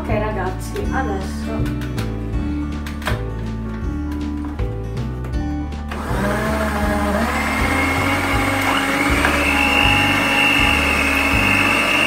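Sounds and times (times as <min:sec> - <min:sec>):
stand mixer motor whine: 0:05.9 - 0:12.0.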